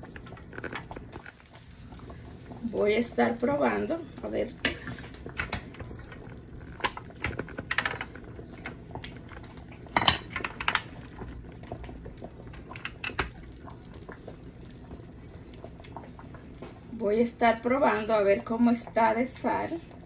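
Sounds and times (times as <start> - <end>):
kitchen utensils clinking on pots: 10.0 - 10.6.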